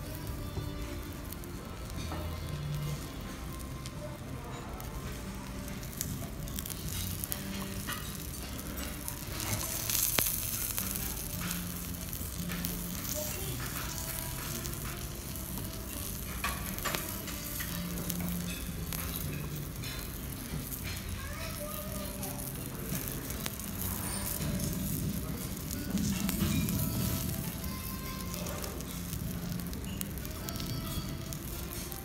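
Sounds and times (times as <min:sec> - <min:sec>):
omelette sizzling in a frying pan: 0:00.0 - 0:32.0.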